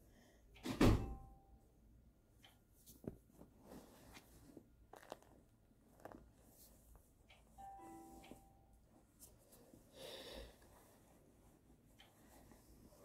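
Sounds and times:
doll clothes rustling: 0:02.8 - 0:07.3, 0:10.6 - 0:13.0.

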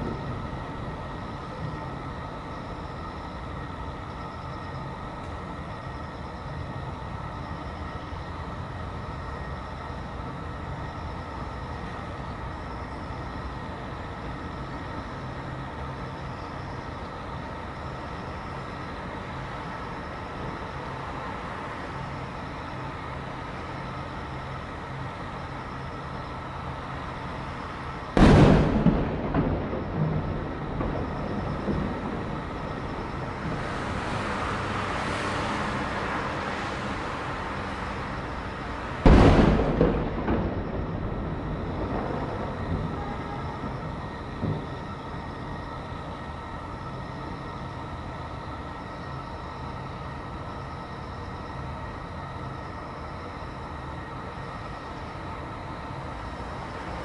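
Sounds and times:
low city hum: 0:00.0 - 0:57.0
firework shell booming: 0:28.2 - 0:33.9, 0:39.0 - 0:45.4.

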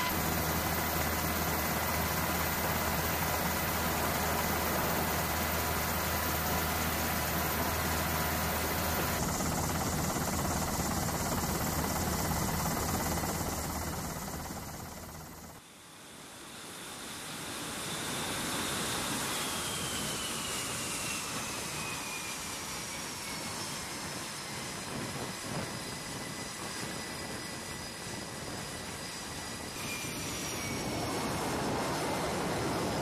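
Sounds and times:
high whine falling in pitch: 0:00.0 - 0:15.3
jet engine noise: 0:00.0 - 0:33.0.

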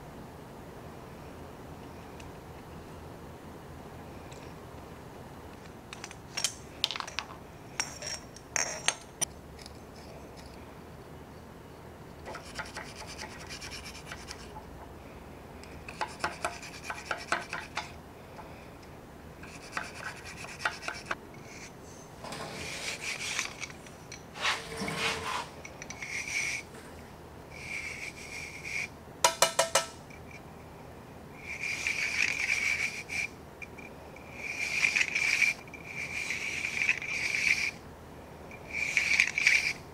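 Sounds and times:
brush scrubbing metal cylinder: 0:12.3 - 0:14.6, 0:16.0 - 0:17.8, 0:19.4 - 0:21.8, 0:22.4 - 0:26.6, 0:27.5 - 0:28.9, 0:31.4 - 0:33.3, 0:34.3 - 0:37.8, 0:38.7 - 0:39.8.

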